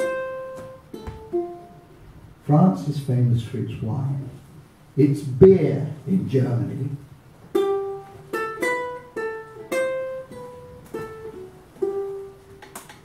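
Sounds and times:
ukulele plucked melody: 0:00.0 - 0:02.0, 0:07.5 - 0:13.0.

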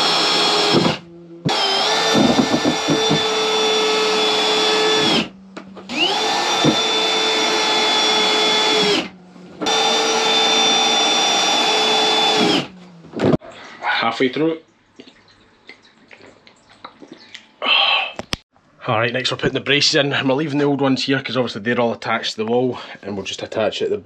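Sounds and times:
cordless drill whining: 0:00.0 - 0:05.3, 0:05.9 - 0:12.8.

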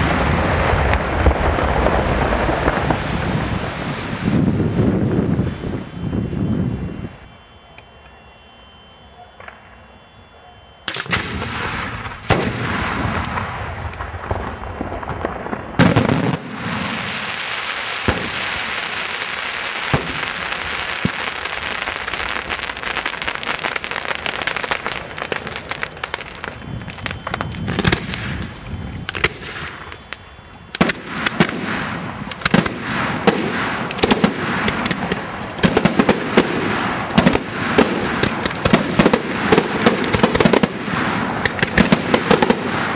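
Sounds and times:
firework bangs: 0:00.0 - 0:06.4, 0:10.8 - 0:42.9
firework crackling: 0:00.0 - 0:08.3, 0:09.4 - 0:42.9.

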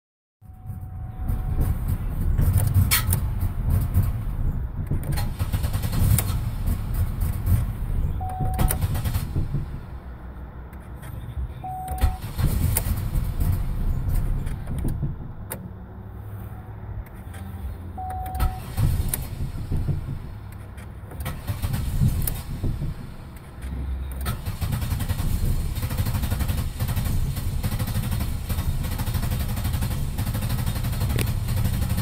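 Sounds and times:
low rumble: 0:00.4 - 0:24.2
electronic warning tone: 0:08.2 - 0:08.8, 0:11.6 - 0:12.2, 0:18.0 - 0:18.7
ignition key clicks: 0:08.2 - 0:09.0, 0:10.7 - 0:13.0, 0:17.0 - 0:19.3.

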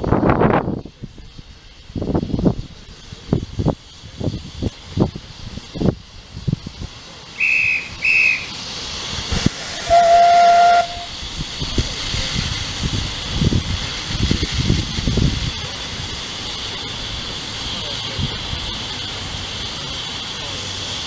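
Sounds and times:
low steam puffs: 0:00.0 - 0:21.0
steam hissing: 0:00.0 - 0:21.0
steam locomotive whistle: 0:07.4 - 0:08.6, 0:09.4 - 0:11.2.

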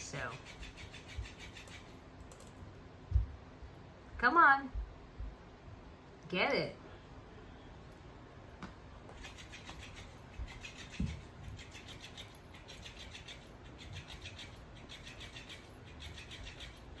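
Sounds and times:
cat toy scuffing on tile floor: 0:09.0 - 0:13.0.

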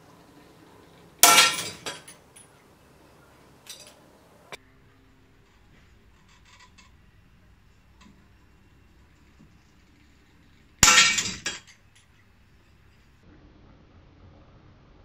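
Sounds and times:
chain and shackles rattling: 0:00.9 - 0:02.6, 0:03.6 - 0:04.1, 0:05.4 - 0:12.2.

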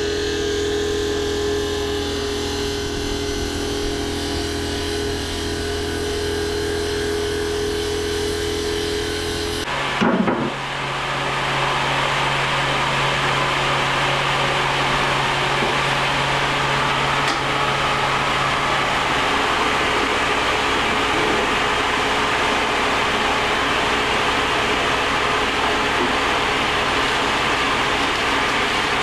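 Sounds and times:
low hum: 0:00.0 - 0:09.7
core saw whirring: 0:00.0 - 0:29.0.

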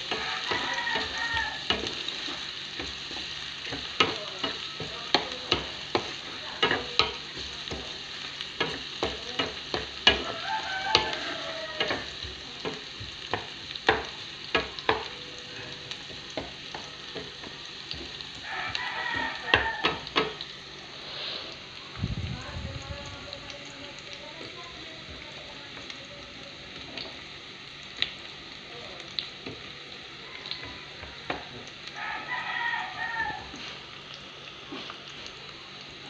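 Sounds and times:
onions sizzling in a frying pan: 0:00.0 - 0:36.0
wooden spatula clacking on pan: 0:00.1 - 0:08.0, 0:08.6 - 0:11.1, 0:11.7 - 0:15.1, 0:16.1 - 0:20.4.

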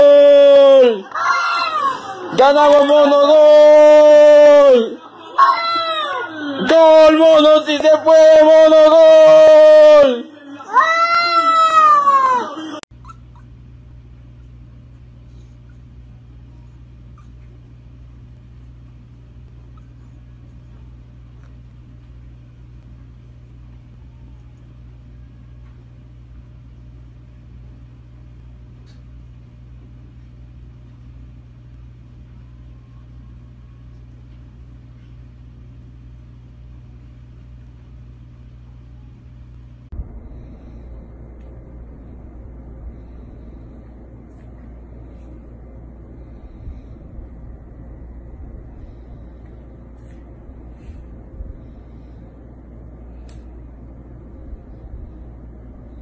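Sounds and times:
steady low hum: 0:00.0 - 0:56.0
puppies squeaking: 0:13.0 - 0:13.5, 0:17.0 - 0:17.6.

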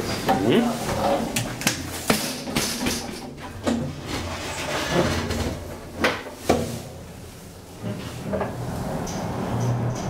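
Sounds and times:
sliding elevator doors closing: 0:03.0 - 0:10.0.

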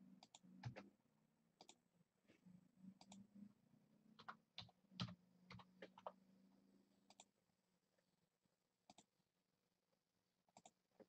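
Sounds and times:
faint low hum: 0:00.0 - 0:09.1
computer mouse clicks: 0:00.2 - 0:00.9, 0:01.6 - 0:01.8, 0:03.0 - 0:03.3, 0:07.1 - 0:07.3, 0:08.9 - 0:09.1, 0:10.5 - 0:10.8.

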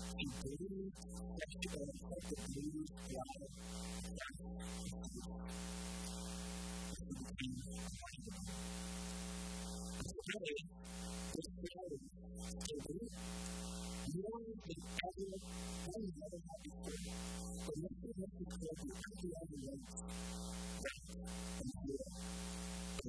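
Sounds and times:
faint man's voice: 0:00.0 - 0:05.6, 0:06.9 - 0:08.6, 0:09.8 - 0:23.0
electrical mains buzz: 0:02.9 - 0:11.5, 0:12.2 - 0:14.2, 0:14.8 - 0:16.0, 0:16.6 - 0:17.7, 0:19.8 - 0:23.0.

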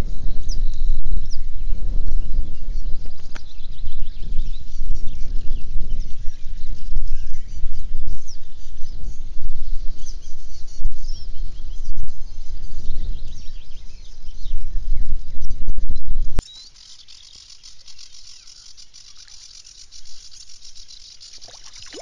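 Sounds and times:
wind buffeting microphone: 0:00.0 - 0:16.4
birds chirping and singing: 0:00.2 - 0:22.0.

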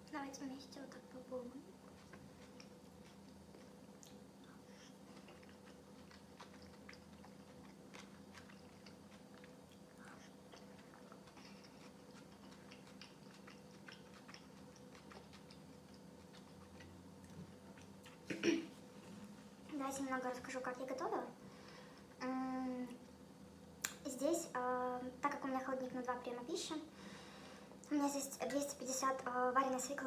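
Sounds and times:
person chewing: 0:01.8 - 0:18.4.

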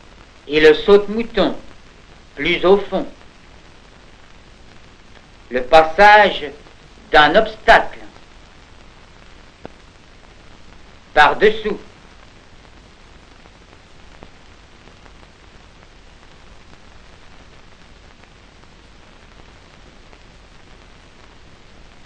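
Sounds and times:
film soundtrack hiss: 0:00.0 - 0:22.0
faint click: 0:05.1 - 0:05.3.

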